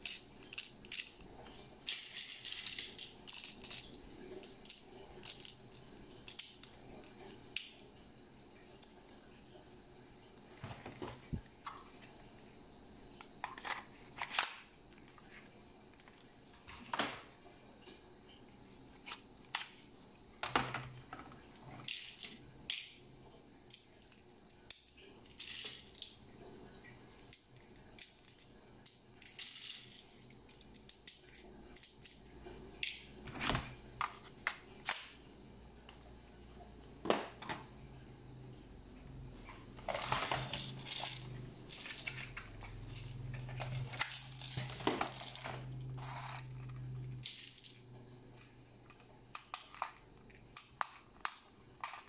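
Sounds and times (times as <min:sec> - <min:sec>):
plastic toy guns clicking and rattling: 0:01.9 - 0:06.7, 0:39.9 - 0:47.8, 0:49.4 - 0:52.0.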